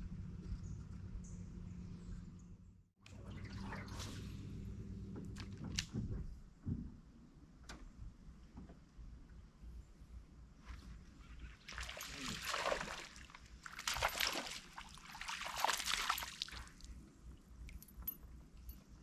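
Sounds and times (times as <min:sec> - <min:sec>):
fish splashing at water surface: 0:11.6 - 0:16.8.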